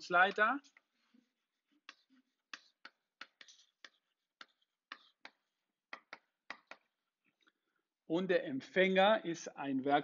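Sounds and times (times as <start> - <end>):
chalk tapping on blackboard: 1.6 - 7.0.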